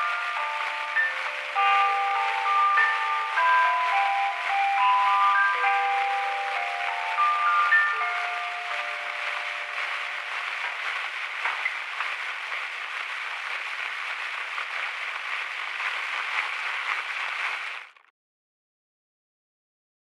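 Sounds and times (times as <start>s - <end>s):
dense crackling hiss: 0.0s - 18.1s.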